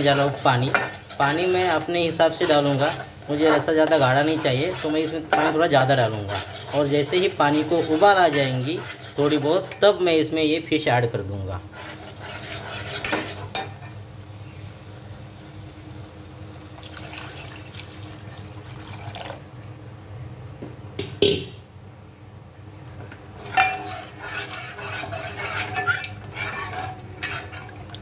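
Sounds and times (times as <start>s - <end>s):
ladle stirring and scraping pot: 0.0s - 10.3s, 11.7s - 14.0s, 23.0s - 28.0s
water poured into pot: 16.8s - 19.6s.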